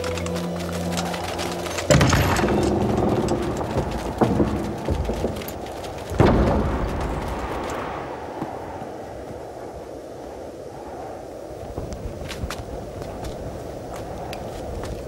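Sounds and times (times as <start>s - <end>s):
loud booms: 1.9s - 8.8s.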